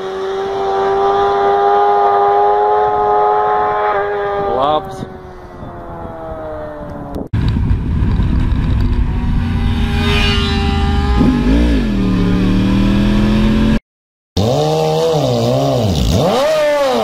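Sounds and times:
motorcycle engine: 0.0s - 13.8s
motorcycle engine revving: 0.0s - 13.8s, 14.4s - 17.0s
heavy wind noise: 2.7s - 13.6s.

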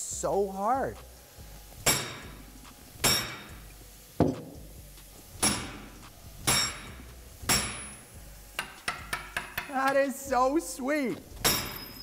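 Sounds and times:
hammer striking metal: 1.8s - 3.6s, 5.4s - 10.0s, 11.4s - 12.0s.

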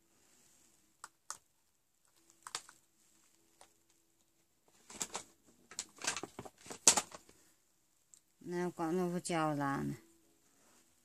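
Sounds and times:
packaging clicks: 2.1s - 2.8s, 4.8s - 7.4s
packaging rustling and crinkling: 2.1s - 7.4s.

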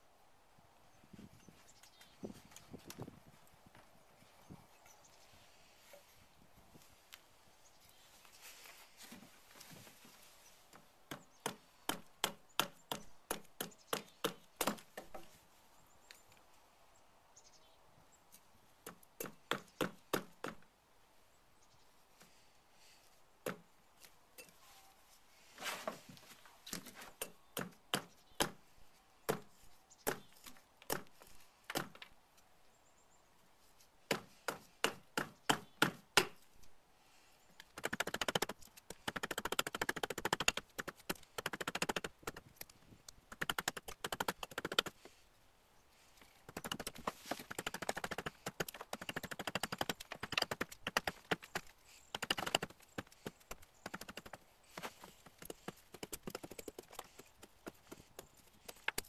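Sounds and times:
hatchet chopping wood: 11.1s - 15.3s, 18.8s - 20.7s, 23.4s - 23.6s, 27.2s - 28.6s, 29.3s - 32.0s, 34.1s - 36.5s, 37.8s - 42.5s, 43.3s - 45.0s, 46.5s - 59.0s.

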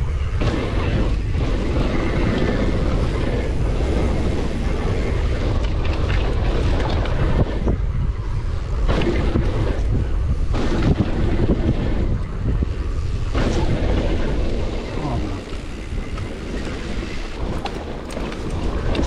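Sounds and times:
bike knocking and rattling: 0.0s - 19.0s
wind rumble on microphone: 0.0s - 19.0s.

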